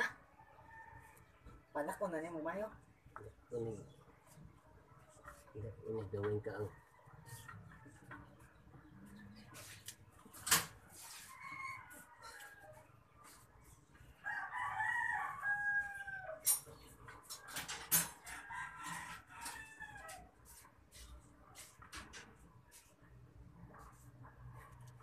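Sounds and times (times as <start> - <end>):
rooster crowing: 14.2 - 16.5, 18.3 - 20.3.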